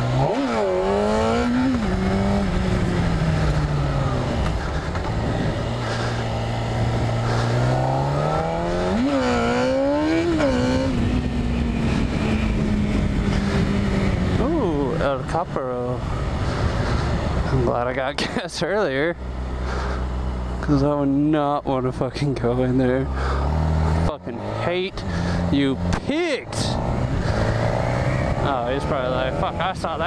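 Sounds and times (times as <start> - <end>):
motorcycle engine accelerating: 0.0 - 30.0
wind noise: 0.8 - 17.8.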